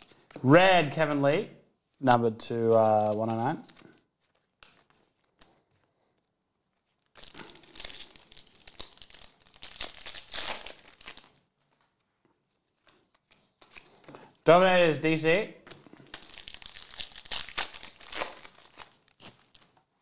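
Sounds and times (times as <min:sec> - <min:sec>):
foil wrapper tearing and crinkling: 0:07.1 - 0:11.4, 0:16.0 - 0:19.8.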